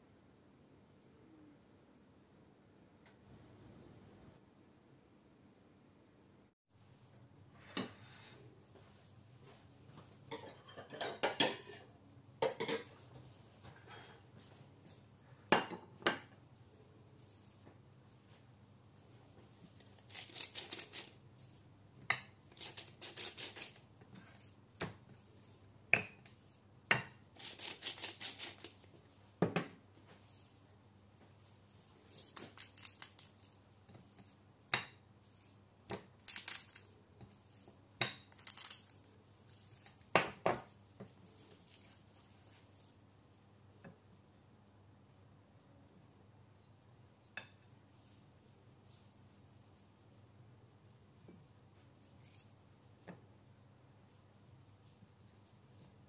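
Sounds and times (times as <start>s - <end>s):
scratchy seasoning bursts: 20.0s - 21.3s, 22.5s - 23.9s, 27.4s - 28.8s.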